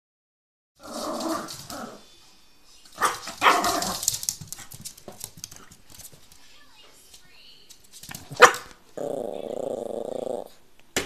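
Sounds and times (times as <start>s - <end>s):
small dog barking: 3.0s - 4.0s, 8.3s - 8.8s.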